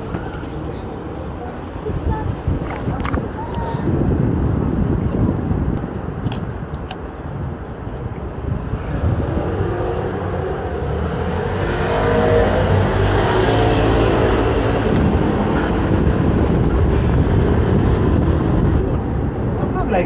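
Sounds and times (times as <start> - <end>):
road rumble: 0.0 - 20.0
vehicle engine running close: 8.7 - 19.6.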